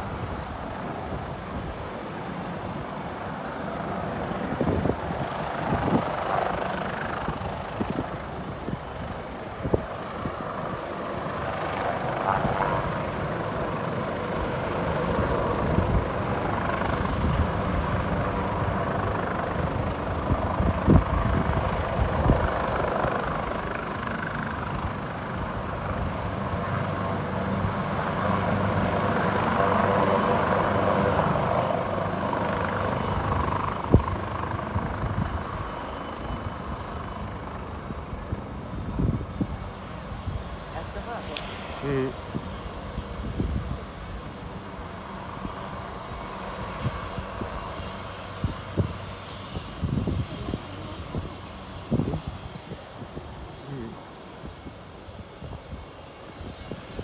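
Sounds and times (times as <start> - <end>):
helicopter rotor and engine: 0.0 - 57.0.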